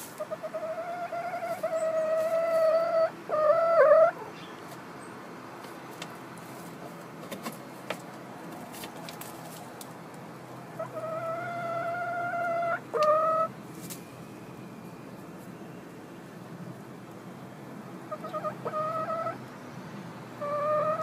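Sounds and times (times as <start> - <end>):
chicken calling: 0.0 - 4.5, 10.7 - 13.6, 18.1 - 19.5, 20.3 - 21.0.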